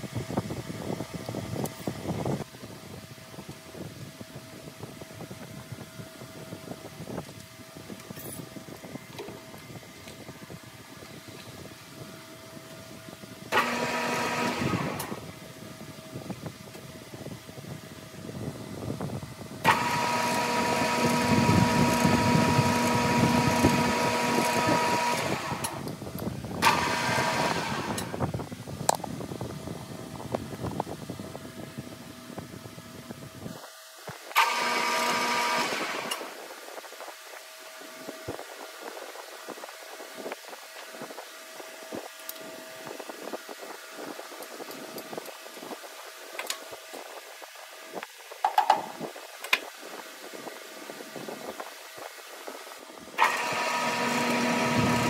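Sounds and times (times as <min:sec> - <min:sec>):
lathe spindle whine: 0:03.1 - 0:18.6, 0:19.2 - 0:28.4, 0:33.7 - 0:46.2, 0:52.6 - 0:55.0.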